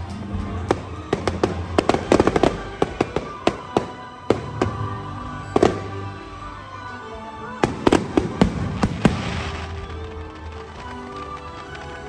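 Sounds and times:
music: 0:00.0 - 0:12.0
fireworks bangs: 0:07.6 - 0:12.0.

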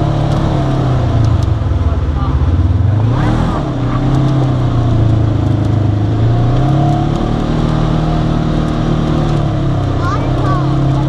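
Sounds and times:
off-road vehicle engine running: 0:00.0 - 0:11.0.

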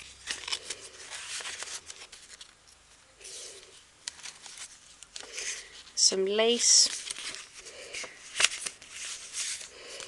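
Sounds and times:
page turning: 0:00.0 - 0:02.6, 0:03.2 - 0:05.6, 0:06.8 - 0:10.0
paper and card rustling: 0:00.0 - 0:10.0.

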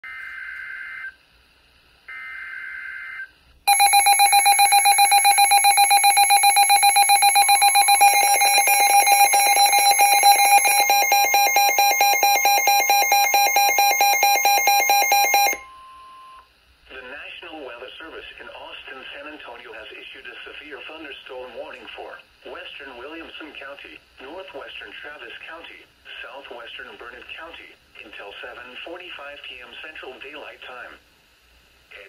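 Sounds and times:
fast pulsing alarm beeps: 0:03.7 - 0:15.7
steady warning tone: 0:03.7 - 0:16.3.

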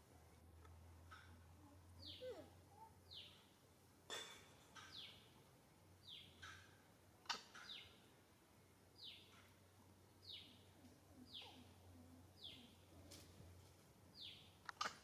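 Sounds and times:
bird chirping: 0:02.0 - 0:03.6, 0:04.8 - 0:05.4, 0:06.0 - 0:06.7, 0:07.3 - 0:08.1, 0:09.0 - 0:09.5, 0:10.2 - 0:12.9, 0:14.1 - 0:14.9.

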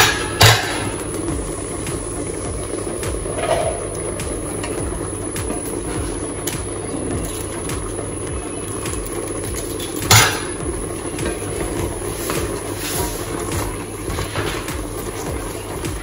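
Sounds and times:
spatula knocking metal pot: 0:00.0 - 0:02.0, 0:10.0 - 0:11.9
steady low hum: 0:00.0 - 0:16.0
spatula scraping pot: 0:07.0 - 0:15.8.

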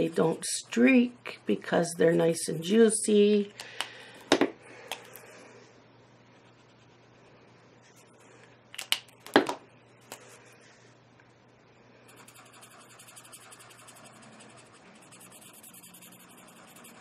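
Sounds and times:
marker rubbing on paper: 0:12.1 - 0:17.0.

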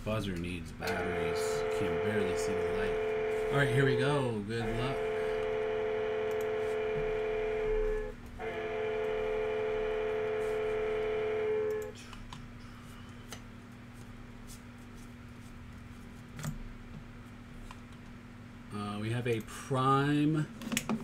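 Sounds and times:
electronic buzzer tone: 0:00.9 - 0:12.0.

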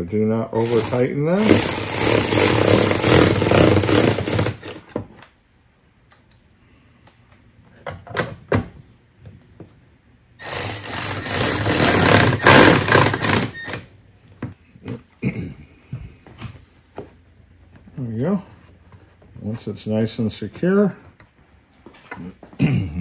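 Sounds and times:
cordless ratchet running: 0:00.6 - 0:04.8, 0:10.4 - 0:13.7.

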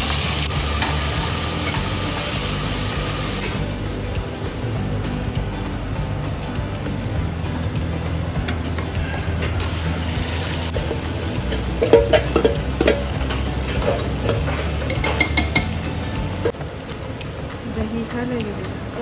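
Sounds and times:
ladle scraping a metal bowl: 0:10.7 - 0:16.0.

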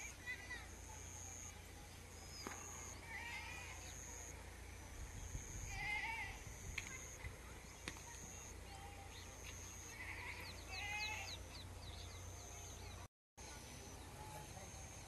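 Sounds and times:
small birds chirping: 0:00.0 - 0:15.0
farm animal bleating: 0:05.7 - 0:06.4, 0:09.8 - 0:11.4.

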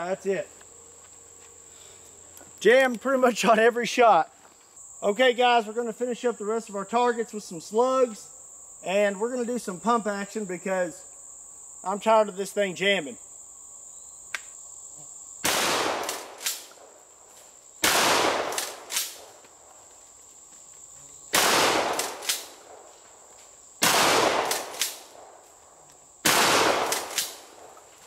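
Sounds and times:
shotgun shots: 0:15.4 - 0:16.9, 0:17.8 - 0:19.3, 0:21.3 - 0:22.8, 0:23.8 - 0:25.4, 0:26.2 - 0:27.8.

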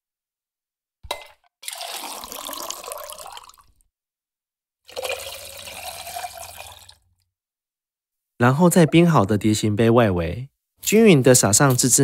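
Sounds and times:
drink poured between metal tins: 0:01.1 - 0:03.8, 0:04.9 - 0:07.0.

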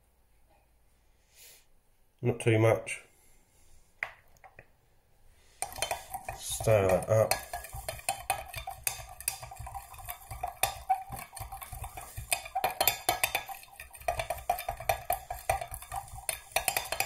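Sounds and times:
stick stirring plastic in jug: 0:05.4 - 0:17.0
stick knocking against jug: 0:05.6 - 0:17.0.

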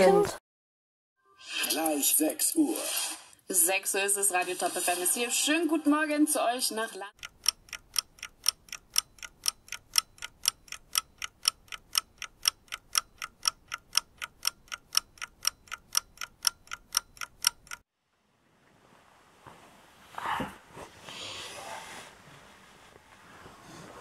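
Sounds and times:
clock ticking: 0:07.2 - 0:17.8.

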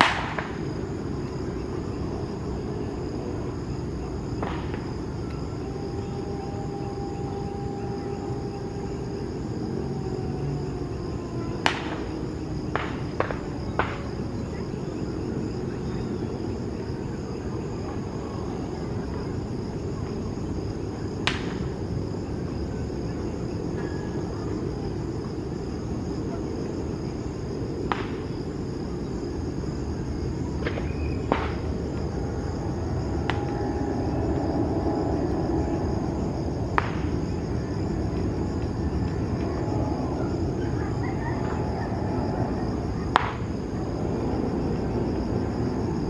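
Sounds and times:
insects chirring: 0:00.0 - 0:46.0
low steady rumble: 0:00.0 - 0:46.0.

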